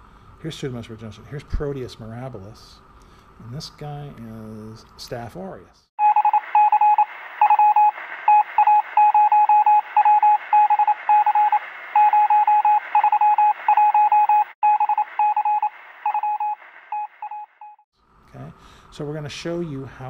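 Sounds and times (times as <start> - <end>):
electronic morse-like beeping: 6.0 - 17.8.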